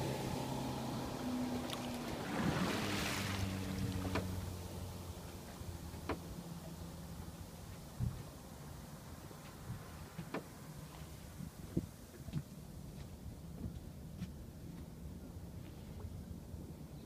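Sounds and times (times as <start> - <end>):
water rushing past: 0.0 - 7.6
outboard motor droning: 0.0 - 17.0.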